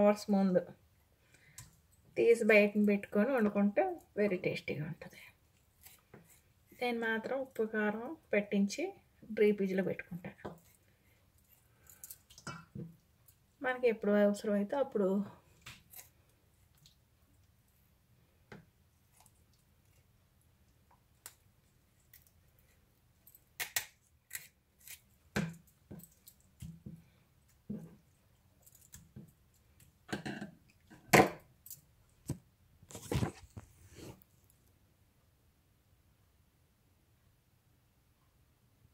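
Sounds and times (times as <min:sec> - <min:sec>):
scissors snipping raw chicken: 0:23.6 - 0:25.1.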